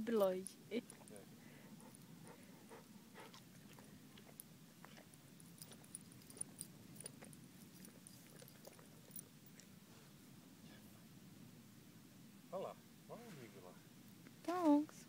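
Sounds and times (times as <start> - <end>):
low steady hiss: 0.0 - 15.0
dog licking ice: 2.8 - 9.7.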